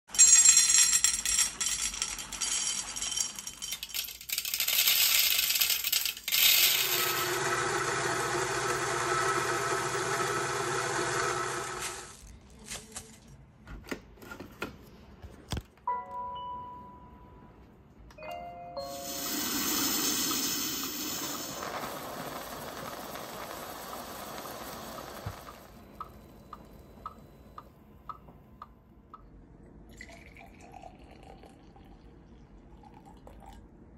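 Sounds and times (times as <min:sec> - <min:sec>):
coffee beans rattling into metal cup: 0:00.2 - 0:07.4, 0:19.0 - 0:25.7
coffee grinder motor grinding: 0:04.4 - 0:12.2, 0:19.0 - 0:25.8.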